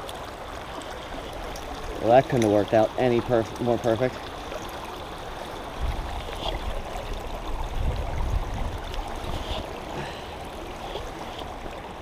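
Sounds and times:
stream running over rocks: 0.0 - 12.0
fabric rubbing on microphone: 9.2 - 9.7.

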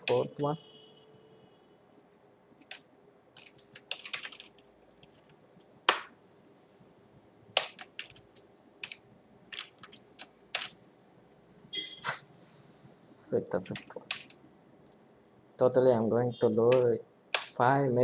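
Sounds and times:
computer keyboard typing: 0.0 - 0.3, 1.9 - 6.1, 7.5 - 10.8, 13.6 - 15.0, 16.6 - 17.6.

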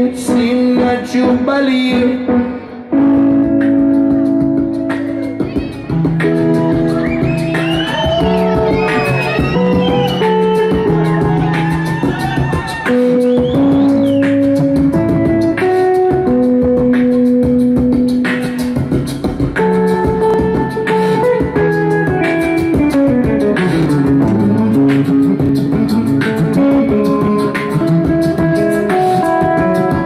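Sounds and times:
person beatboxing: 0.0 - 30.0
held guitar notes: 2.9 - 30.0.

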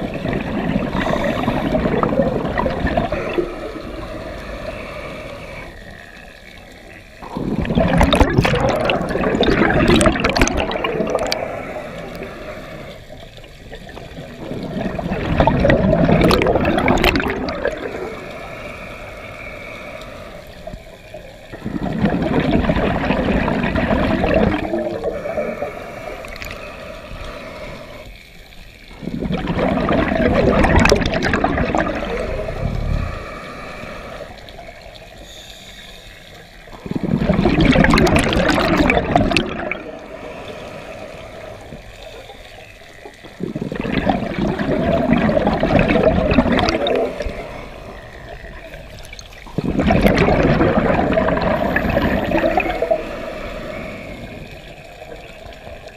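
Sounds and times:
exhaled bubbles rushing: 0.0 - 4.2, 7.2 - 12.4, 13.1 - 18.3, 21.5 - 26.6, 28.9 - 33.4, 36.7 - 40.2, 42.8 - 55.9
diver inhaling through regulator: 0.7 - 10.1, 10.7 - 13.3, 15.8 - 22.4, 23.0 - 28.4, 31.2 - 55.7.

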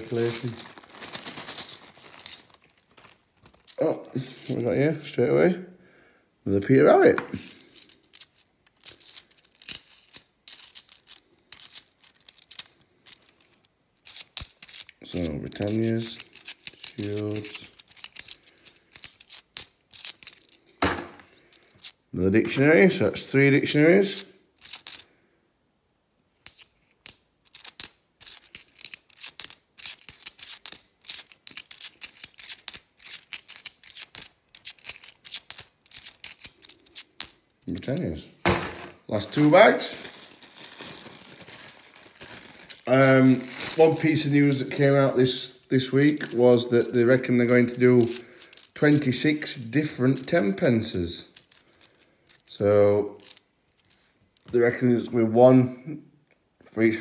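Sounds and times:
coins clinking and sliding: 0.0 - 2.8, 7.3 - 22.0, 24.6 - 25.1, 26.4 - 40.0, 43.0 - 44.2, 45.3 - 54.1.

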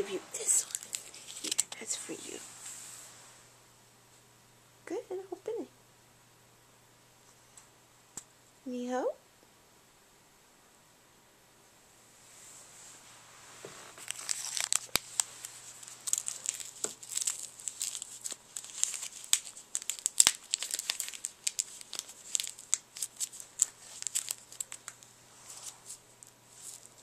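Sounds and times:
wrapping paper crinkling and tearing: 0.4 - 2.3, 13.8 - 27.0.

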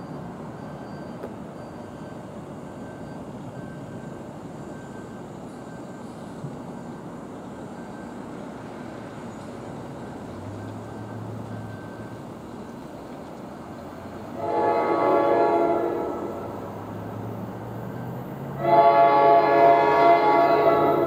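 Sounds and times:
train air horn blasts: 14.3 - 16.7, 18.6 - 21.0.

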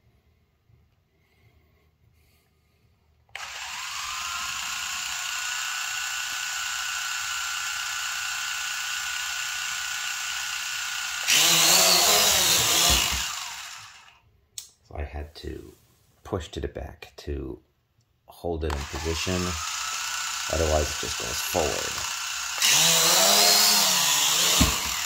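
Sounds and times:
drone motors whining: 3.4 - 14.1, 18.7 - 25.0.

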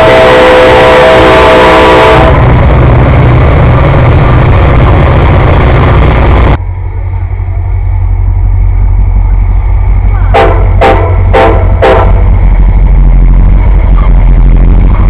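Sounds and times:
train horn blast: 0.0 - 2.6, 10.1 - 12.4
diesel locomotive engine rumble: 0.0 - 15.0
train approaching: 0.0 - 15.0
train wheel noise: 0.0 - 15.0.

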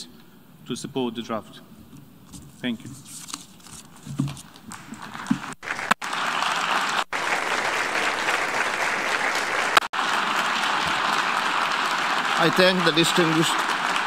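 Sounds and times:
crowd applauding: 4.8 - 14.0.

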